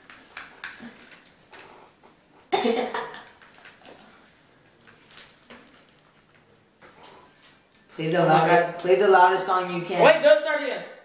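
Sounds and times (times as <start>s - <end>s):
headphones clicks and rustles: 0.0s - 2.1s, 3.1s - 7.1s.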